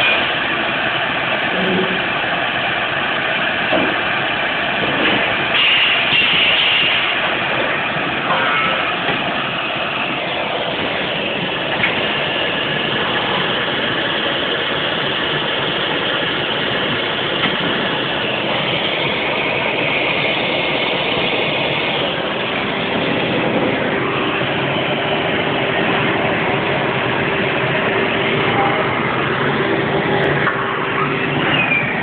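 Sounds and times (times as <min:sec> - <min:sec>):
tube-processing machine running: 0:00.0 - 0:32.0.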